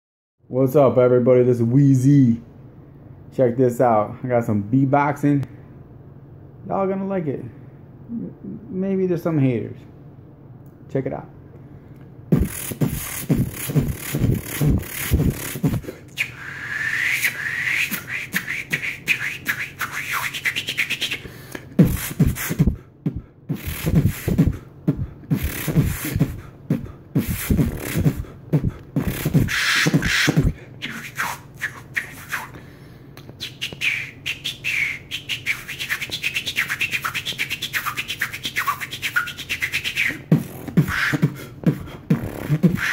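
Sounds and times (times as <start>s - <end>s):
man beatboxing: 12.3s - 32.5s, 33.2s - 42.9s.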